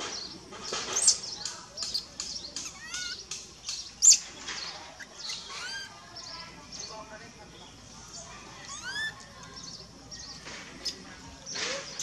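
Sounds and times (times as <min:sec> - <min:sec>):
baby monkey squealing: 0:01.8 - 0:03.2, 0:05.0 - 0:06.0, 0:08.6 - 0:09.2.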